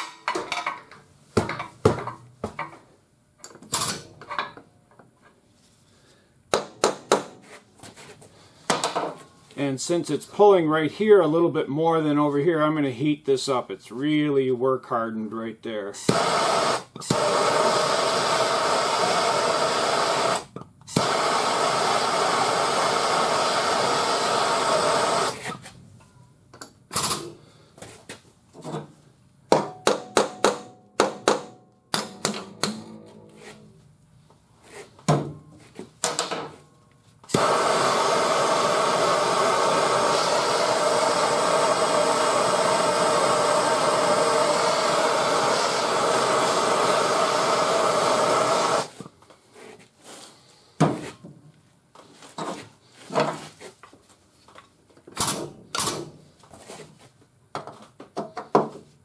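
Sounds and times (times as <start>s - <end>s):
hand torch hissing: 16.0s - 25.6s, 37.3s - 49.0s
hammer tapping sheet metal: 29.5s - 33.0s.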